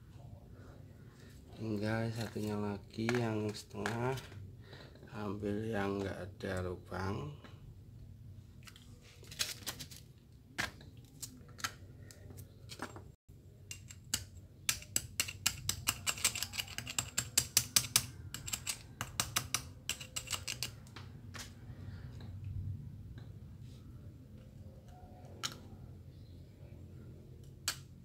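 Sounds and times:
small metal parts clinking: 13.7s - 21.5s.

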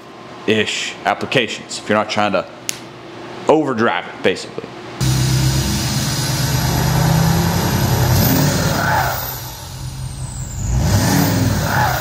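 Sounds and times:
diesel engine revving: 5.0s - 12.0s.

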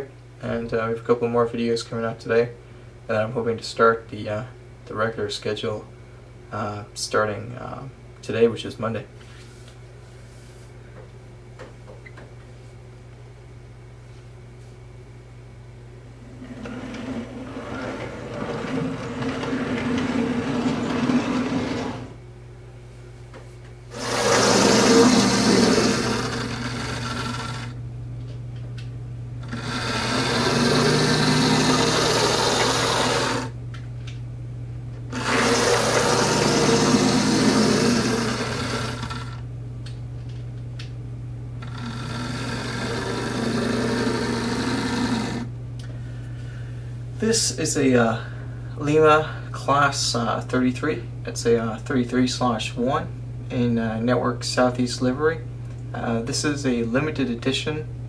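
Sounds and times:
steady low hum: 0.0s - 58.0s
wheels rolling on rails: 16.4s - 22.2s
model train motor whirring: 23.9s - 27.8s, 29.4s - 33.5s, 35.1s - 39.4s, 41.6s - 45.5s.

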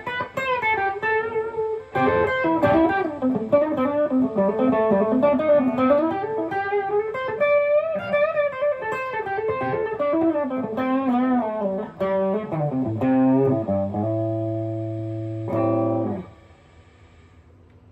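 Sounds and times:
electric guitar lead line: 0.0s - 17.9s.

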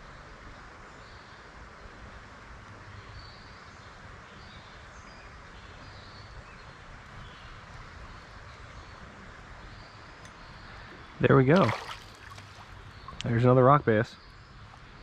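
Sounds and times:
faint bird chirps: 3.0s - 15.0s
running water: 11.2s - 14.0s.

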